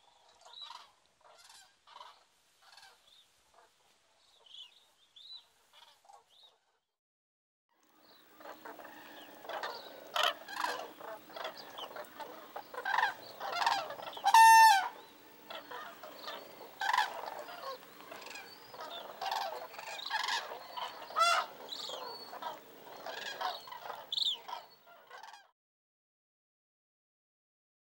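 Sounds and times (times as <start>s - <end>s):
cranes trumpeting calls: 8.2s - 25.5s.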